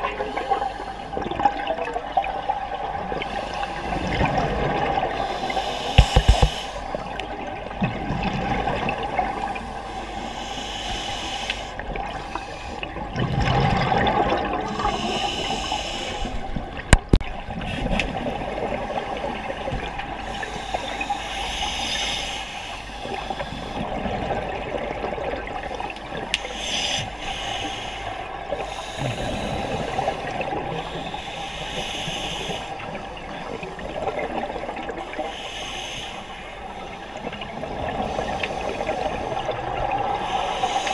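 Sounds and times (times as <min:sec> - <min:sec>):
steady watery rumble: 0:00.0 - 0:40.9
regulator breathing hiss: 0:05.2 - 0:07.1, 0:09.5 - 0:12.9, 0:14.6 - 0:16.5, 0:20.2 - 0:23.9, 0:26.4 - 0:33.0, 0:35.0 - 0:37.2, 0:38.0 - 0:40.9
exhaled bubbles rushing: 0:13.0 - 0:15.0.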